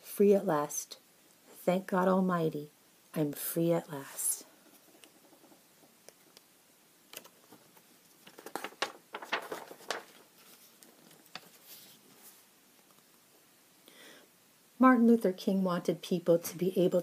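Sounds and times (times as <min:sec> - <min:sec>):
paper rustling: 0:07.1 - 0:13.0
pages turning with soft clicks: 0:07.1 - 0:13.2.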